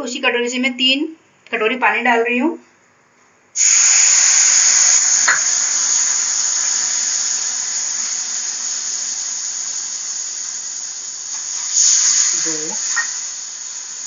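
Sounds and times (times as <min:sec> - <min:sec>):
water sizzling in hot pan: 0:03.6 - 0:14.0
sharp click: 0:05.2 - 0:05.8.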